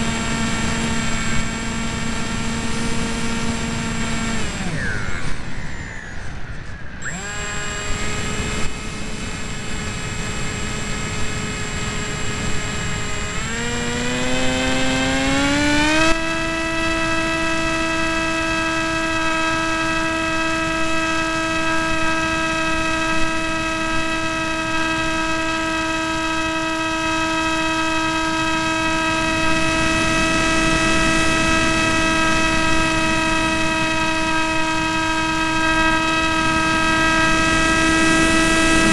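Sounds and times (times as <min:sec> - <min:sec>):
electric motor whine: 0:00.0 - 0:38.9
wind rushing over microphone: 0:28.3 - 0:38.9.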